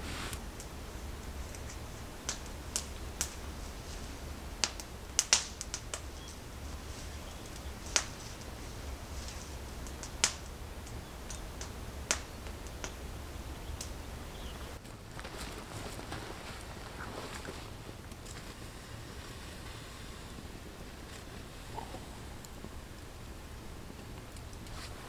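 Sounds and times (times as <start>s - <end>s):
campfire crackling and popping: 0.1s - 25.0s.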